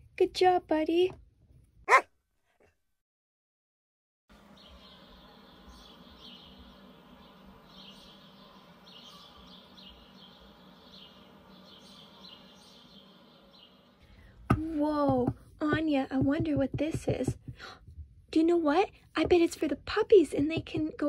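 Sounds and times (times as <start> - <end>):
small birds chirping: 4.4 - 17.7.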